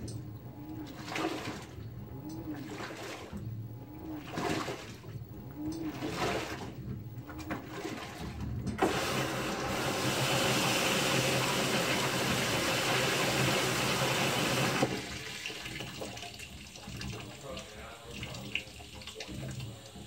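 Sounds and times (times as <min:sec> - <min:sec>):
washing machine churning: 0:00.0 - 0:20.0
water rushing in tub: 0:00.0 - 0:20.0
water splashing: 0:02.5 - 0:03.4.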